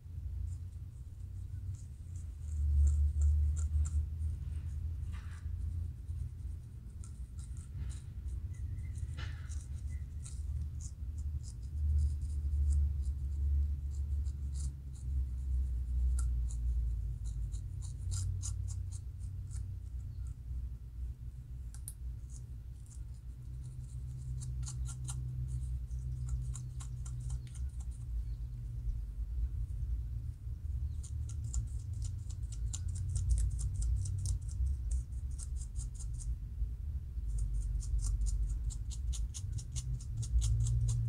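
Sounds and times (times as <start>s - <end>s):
metal comb scratching scalp: 0.6s - 20.2s, 21.8s - 28.1s, 30.9s - 36.4s, 37.3s - 41.0s
low rumble: 18.8s - 41.0s.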